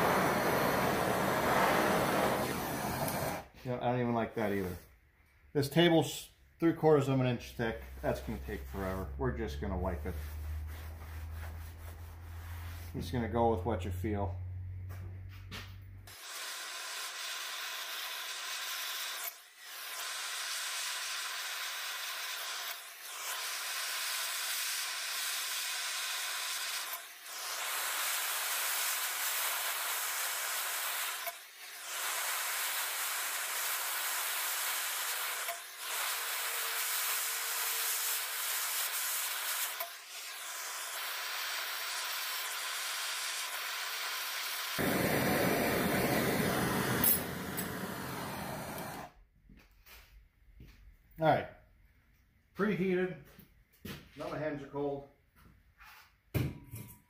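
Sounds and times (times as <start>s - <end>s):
gas torch hissing: 0.0s - 3.6s, 16.1s - 49.2s.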